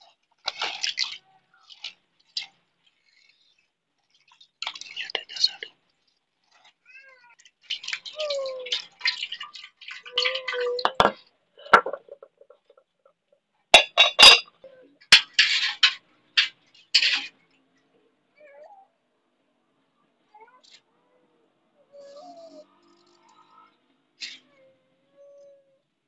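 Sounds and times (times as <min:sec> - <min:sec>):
utensils clinking and knocking: 0:10.3 - 0:12.8, 0:13.8 - 0:14.5, 0:15.1 - 0:17.4.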